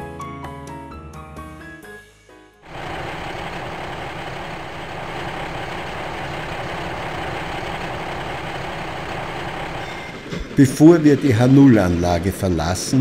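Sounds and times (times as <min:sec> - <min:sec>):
truck engine idling: 0:02.7 - 0:10.1.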